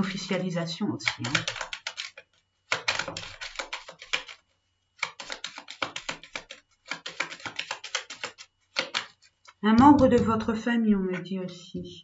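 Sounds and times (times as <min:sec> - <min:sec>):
cards being shuffled: 0:01.0 - 0:04.4, 0:05.0 - 0:09.6.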